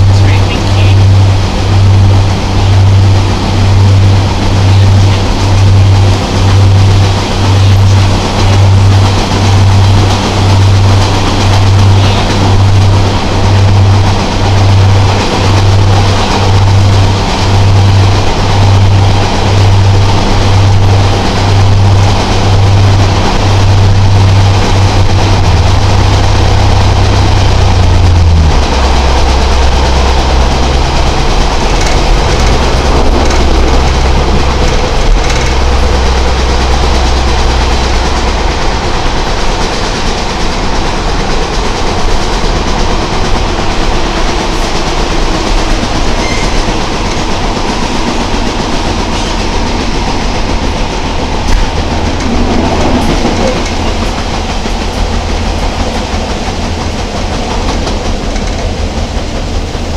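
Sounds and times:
diesel engine droning: 0.0s - 59.9s
wheels rumbling on rails: 0.0s - 59.9s.

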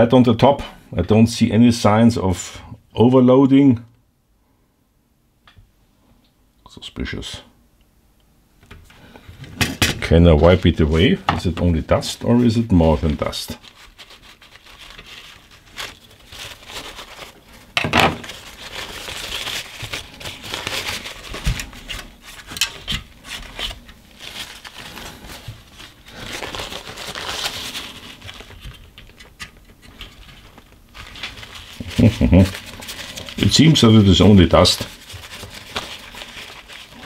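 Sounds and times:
rustling and scraping: 8.7s - 37.0s.

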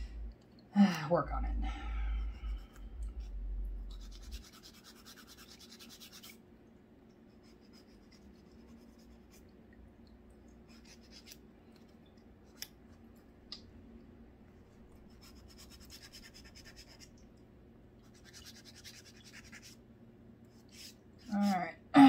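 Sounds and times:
low rumble: 0.0s - 0.4s, 1.2s - 4.4s
nail file rasping: 3.9s - 6.4s.

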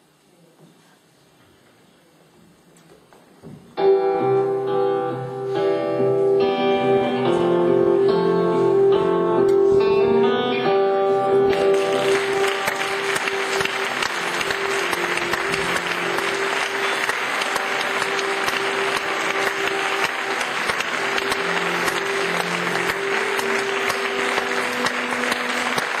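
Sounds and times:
guitar holding notes: 3.8s - 26.0s
audience applauding: 11.4s - 26.0s.

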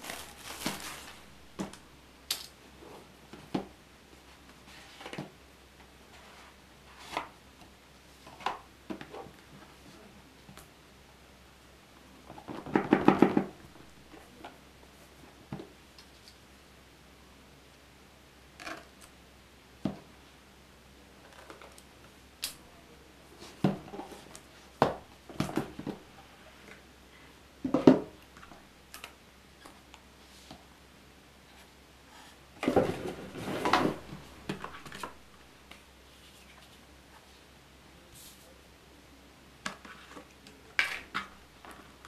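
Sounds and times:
packaging rustling: 0.0s - 1.6s.

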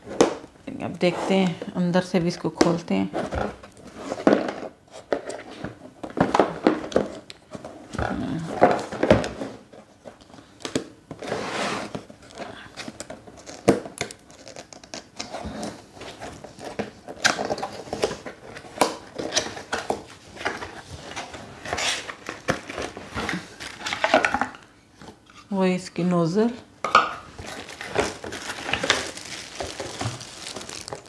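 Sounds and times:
cardboard box rustling and scraping: 11.2s - 12.1s, 27.4s - 31.0s.

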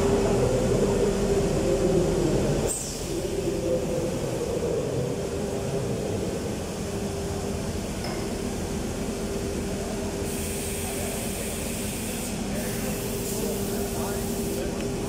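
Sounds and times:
air hissing: 10.2s - 14.8s.

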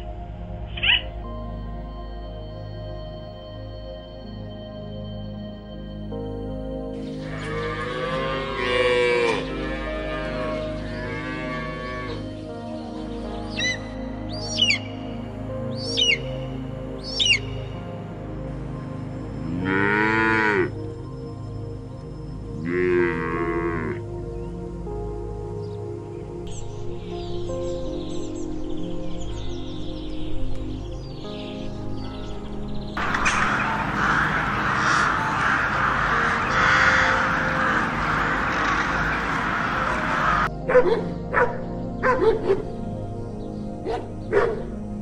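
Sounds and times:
background music: 0.0s - 45.0s
cattle mooing: 7.2s - 12.3s, 19.4s - 20.8s, 22.6s - 24.0s
crows cawing: 7.2s - 12.3s, 33.0s - 40.5s
dog barking: 40.7s - 42.7s, 43.8s - 44.7s.

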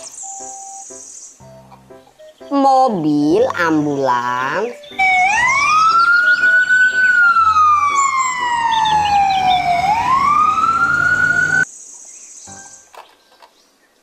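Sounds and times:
ambulance siren wailing: 4.9s - 11.7s.

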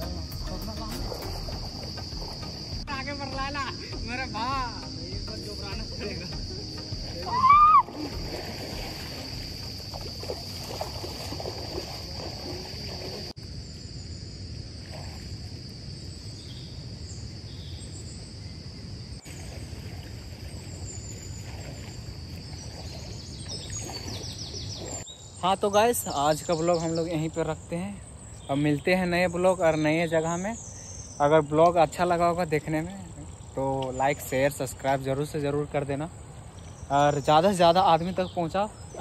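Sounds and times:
high chirps: 0.0s - 9.3s
water splashing from wading: 0.0s - 13.4s, 14.8s - 15.5s, 19.2s - 25.1s
insects chirring: 0.0s - 39.0s
loud rising and falling call: 6.5s - 8.2s.

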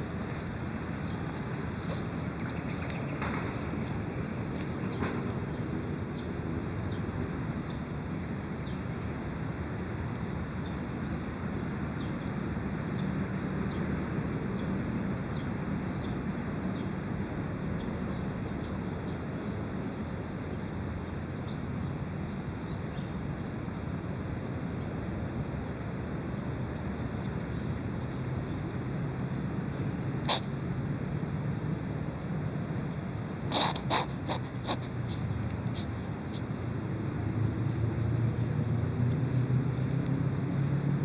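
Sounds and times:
high-pitched hiss: 32.9s - 36.9s.

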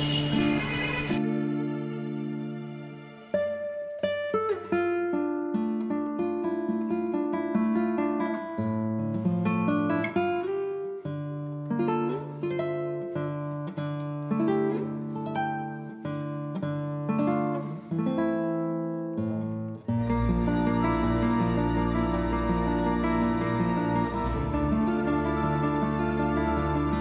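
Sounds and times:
acoustic guitar plucking melody: 0.0s - 27.0s.

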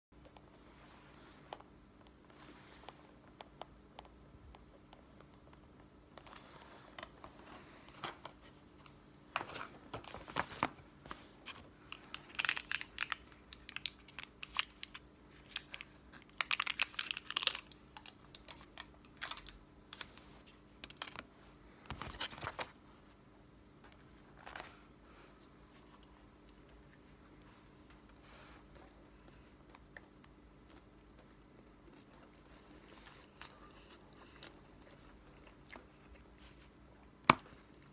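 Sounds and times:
paper packaging crinkling: 9.4s - 21.3s.

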